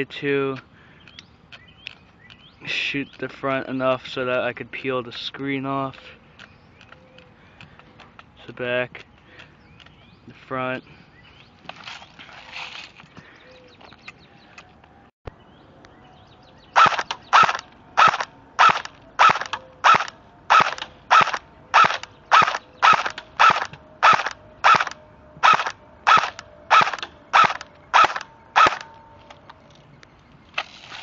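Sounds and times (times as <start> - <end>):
airsoft rifle shots: 16.8 - 28.9.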